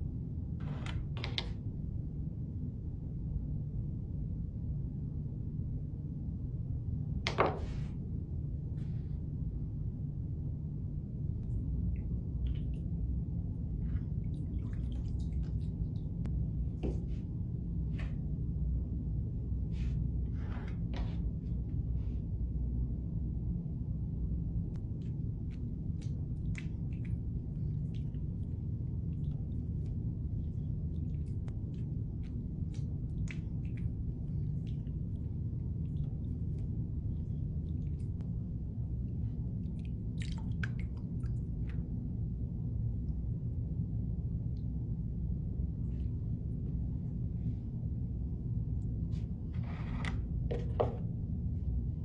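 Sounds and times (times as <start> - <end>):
low room hum: 0.0 - 52.0
wet clay squishing and splashing: 13.8 - 16.3, 39.7 - 41.8
wet hand squishing clay: 24.8 - 38.2.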